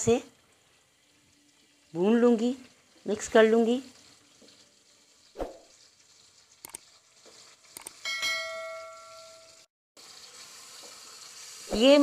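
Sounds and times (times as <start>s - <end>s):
food sizzling in a pan: 0.0s - 12.0s
sharp clicks: 7.8s - 8.0s
bell chime: 8.0s - 9.6s.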